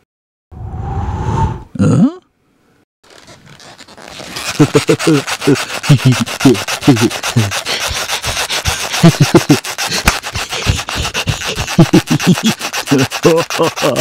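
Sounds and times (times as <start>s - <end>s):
vocal percussion strokes: 4.4s - 14.0s.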